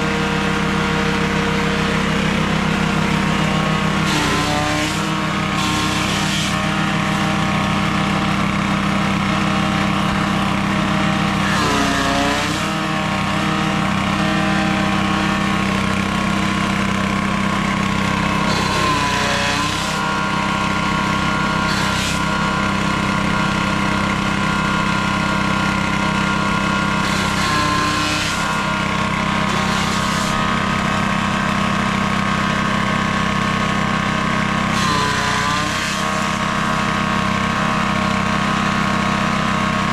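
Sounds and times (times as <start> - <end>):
grass chopper cutting stalks: 0.0 - 39.9
petrol engine running: 0.0 - 39.9.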